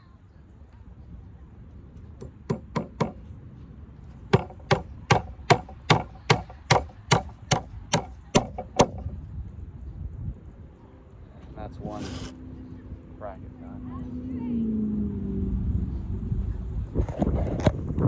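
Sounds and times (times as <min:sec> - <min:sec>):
hammer striking nails into wood: 0:02.2 - 0:03.2, 0:04.3 - 0:09.0.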